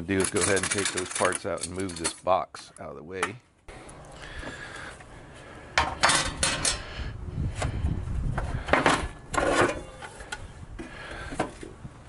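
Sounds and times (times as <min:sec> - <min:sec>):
sheet metal parts clattering: 0:00.0 - 0:02.4, 0:05.8 - 0:06.9, 0:08.6 - 0:10.4.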